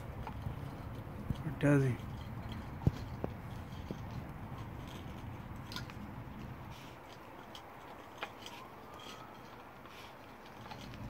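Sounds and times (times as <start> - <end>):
teeth clicking and scraping on horn: 0.0 - 11.0.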